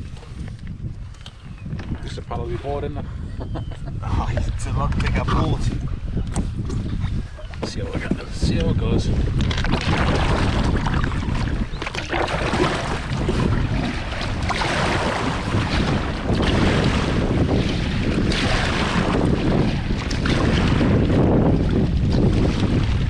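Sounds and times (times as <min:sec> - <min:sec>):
wind buffeting microphone: 0:00.0 - 0:23.0
kayak paddle splashing water: 0:09.1 - 0:23.0.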